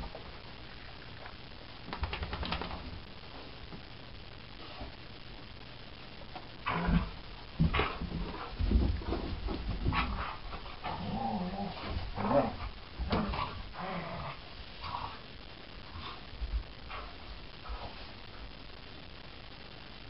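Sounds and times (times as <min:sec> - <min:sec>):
dogs growling and huffing: 0:06.6 - 0:15.2.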